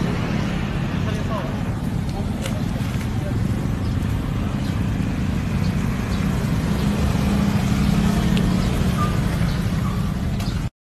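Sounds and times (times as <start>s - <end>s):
vehicle engine and road rumble: 0.0s - 10.7s.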